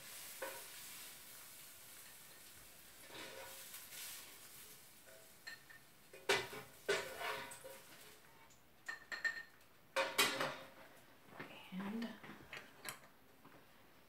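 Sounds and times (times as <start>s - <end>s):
metal utensil scraping frying pan: 0.0s - 8.2s.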